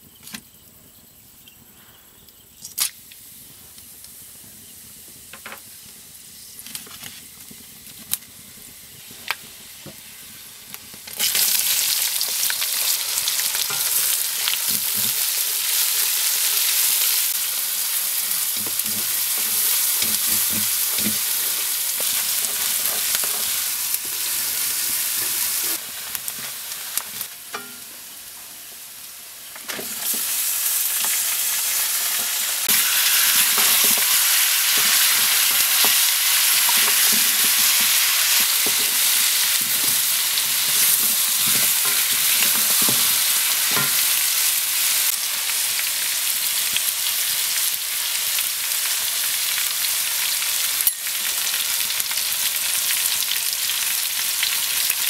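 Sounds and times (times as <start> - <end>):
onions sizzling in hot oil: 2.4 - 55.0
spoon clinking in a wok: 27.5 - 27.9.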